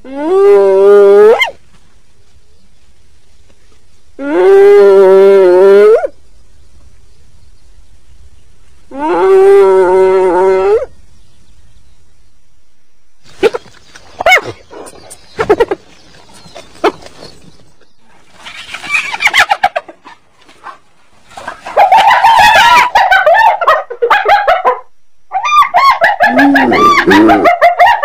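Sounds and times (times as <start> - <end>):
hyena yelps: 0.0 - 1.6, 21.6 - 28.0
hyena chattering: 25.3 - 27.8
hyena calls: 25.3 - 28.0.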